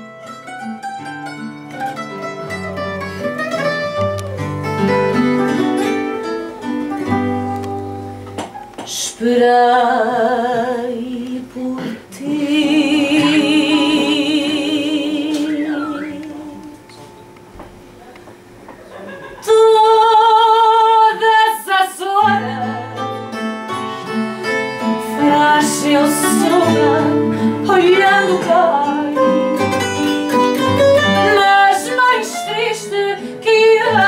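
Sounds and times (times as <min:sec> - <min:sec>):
plucked guitar phrase: 0:00.0 - 0:08.7, 0:22.3 - 0:33.0
woman singing with vibrato: 0:08.9 - 0:16.9, 0:19.4 - 0:23.1, 0:25.0 - 0:34.0.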